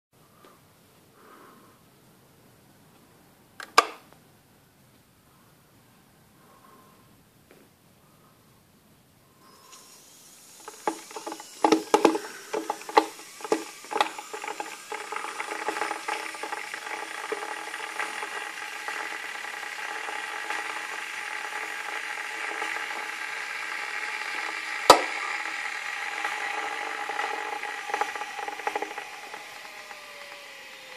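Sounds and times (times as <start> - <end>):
kettle hissing with whine: 9.3 - 30.9
kettle ticking and popping: 9.7 - 30.9.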